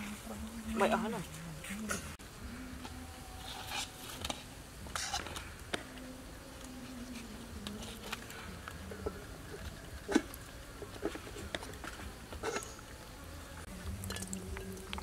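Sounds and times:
low wavering buzzing hum: 0.0s - 15.0s.

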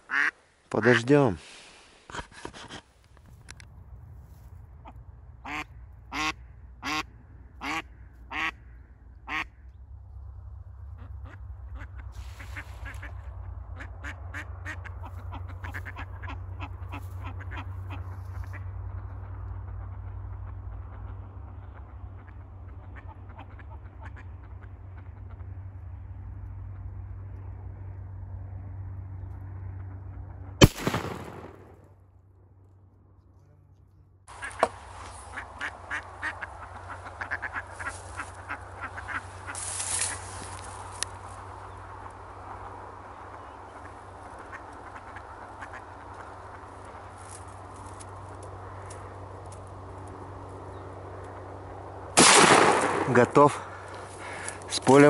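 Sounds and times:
duck quacking: 0.1s - 1.1s, 5.4s - 8.6s, 9.3s - 9.5s, 13.8s - 18.7s, 19.8s - 25.5s, 34.3s - 40.2s, 43.4s - 46.7s
steady low rumble: 2.9s - 55.0s
shotgun shot with echo: 30.6s - 31.8s, 52.2s - 53.4s.

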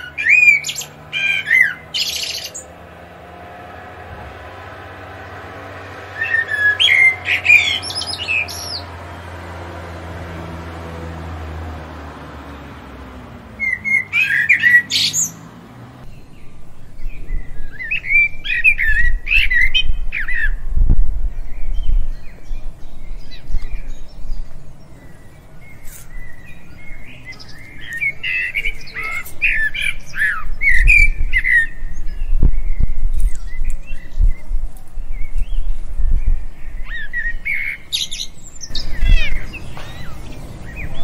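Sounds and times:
low hum: 0.0s - 13.8s
robin chirping: 0.0s - 41.0s.

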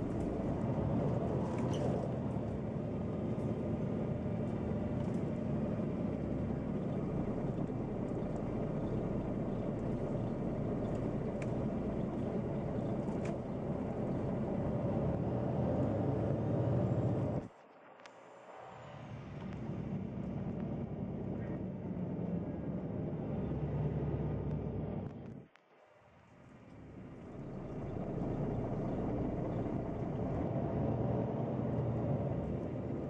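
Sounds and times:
bus engine and rolling noise: 0.0s - 33.0s
faint clicks: 10.8s - 13.5s.

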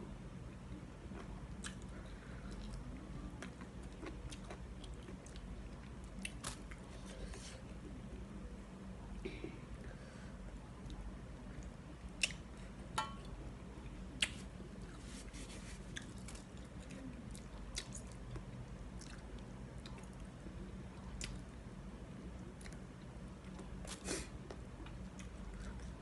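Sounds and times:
person chewing: 3.4s - 7.5s.

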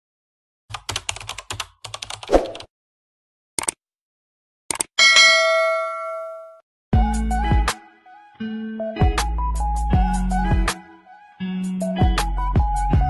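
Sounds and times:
keyboard typing clicks: 4.7s - 4.9s
bell ding: 5.0s - 6.6s.

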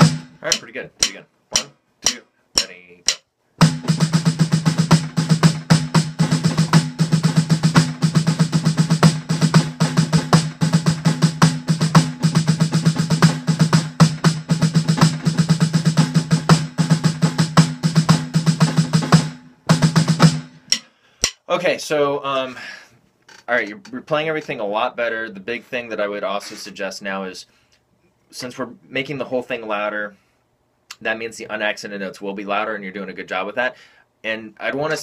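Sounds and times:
rapid snare drum strokes: 0.0s - 21.4s.

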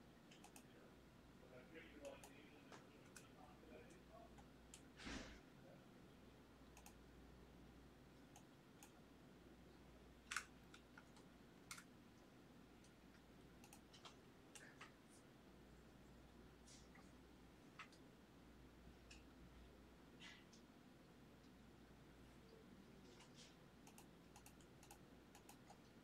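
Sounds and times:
keyboard and mouse clicks: 0.3s - 0.7s, 6.7s - 7.0s, 10.2s - 11.9s, 12.8s - 15.0s, 17.7s - 18.0s, 23.1s - 26.0s.

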